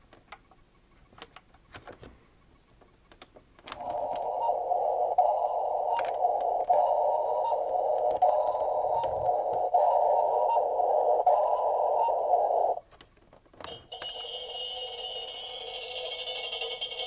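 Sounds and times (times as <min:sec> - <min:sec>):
high-pitched toy sound effect: 0:03.8 - 0:12.8, 0:13.8 - 0:17.0
tinny toy sound effect: 0:03.8 - 0:12.8, 0:13.7 - 0:17.0.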